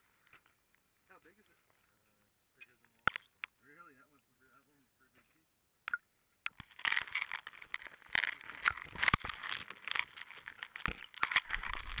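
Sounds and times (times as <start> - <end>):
scraping and crackling in slush: 6.6 - 12.0.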